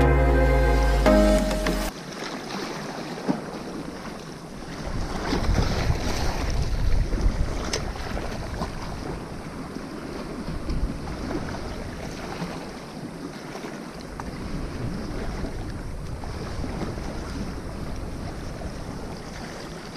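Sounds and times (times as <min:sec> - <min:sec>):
small waves lapping: 0:01.9 - 0:19.9
wind buffeting microphone: 0:04.7 - 0:12.5, 0:14.2 - 0:19.9.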